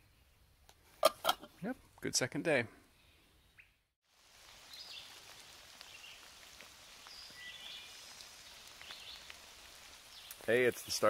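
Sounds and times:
raindrops pattering: 4.0 - 11.0.

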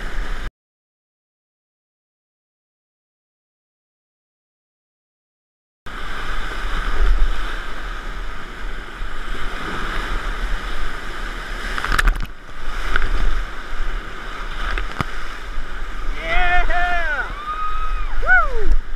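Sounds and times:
whitewater rushing and crashing: 5.9 - 18.9.

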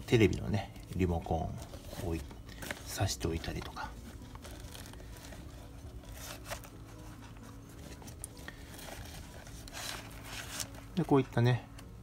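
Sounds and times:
rustles and taps of fabric bag: 0.9 - 11.9.

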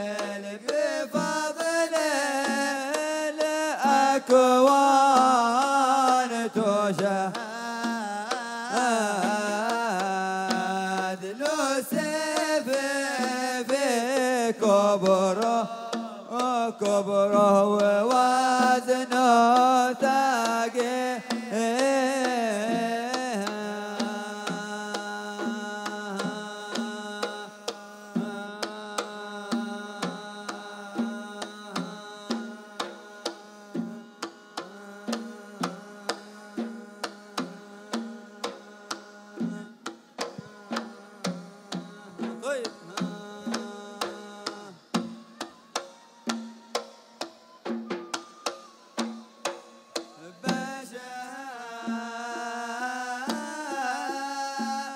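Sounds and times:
steady drum beats: 0.0 - 54.9
wooden flute melody: 41.8 - 54.9.

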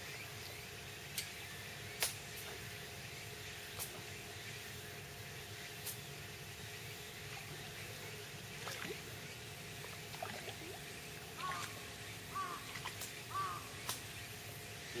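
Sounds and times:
low steady background noise: 0.0 - 15.0
bird calling in short notes: 13.3 - 13.7.

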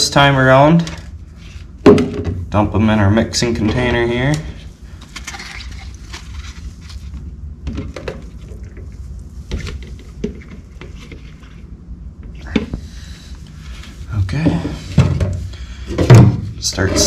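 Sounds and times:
steady low hum: 0.0 - 17.0
plastic cups knocking: 1.9 - 2.4, 9.5 - 11.6.

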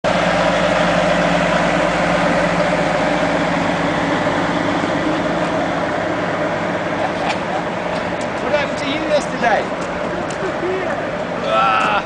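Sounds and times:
diesel locomotive engine running: 0.0 - 12.0.

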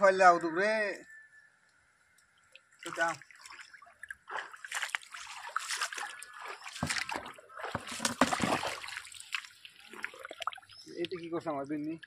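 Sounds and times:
muddy water splashing: 2.7 - 12.0.

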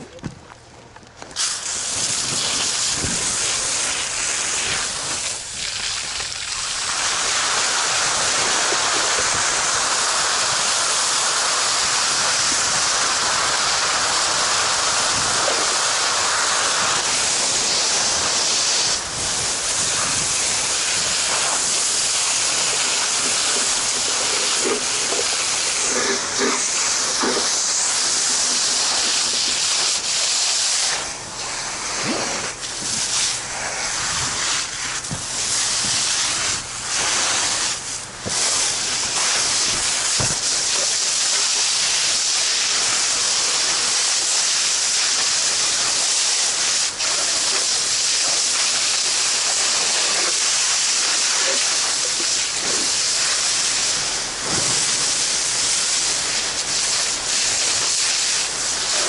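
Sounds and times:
fire hose nozzle opening: 1.2 - 9.6, 14.3 - 42.0
hissing jet of water spraying: 1.4 - 59.0.

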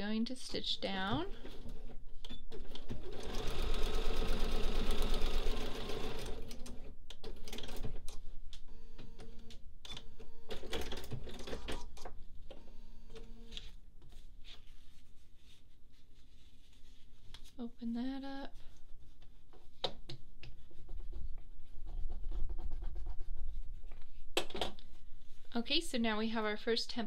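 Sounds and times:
sewing machine stitching: 2.5 - 7.9.

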